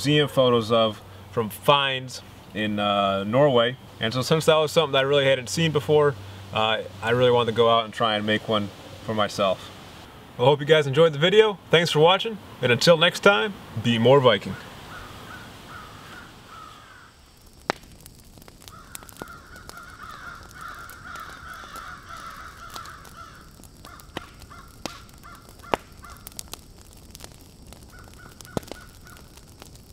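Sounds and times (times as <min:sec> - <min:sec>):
crows cawing: 0:14.5 - 0:17.2, 0:18.6 - 0:26.5, 0:27.9 - 0:29.4.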